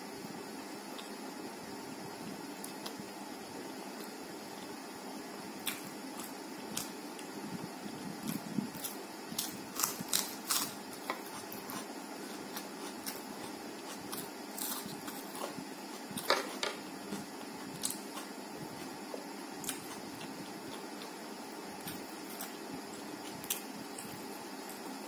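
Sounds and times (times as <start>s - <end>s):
steady low hiss: 0.0s - 25.0s
crisp crunches of chewing: 8.2s - 18.9s.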